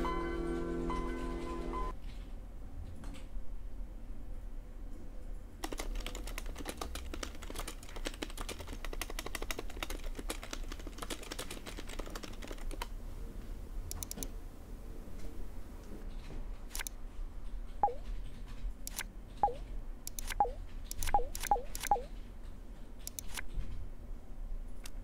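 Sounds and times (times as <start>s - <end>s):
fast typing on keyboard: 5.6s - 13.0s.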